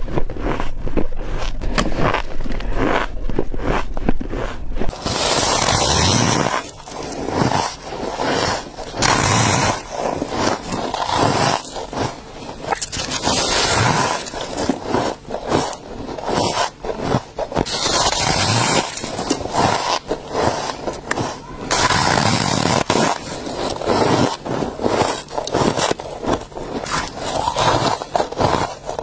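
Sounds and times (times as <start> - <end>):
squeaky crunches of chewing frost: 17.6 - 29.0.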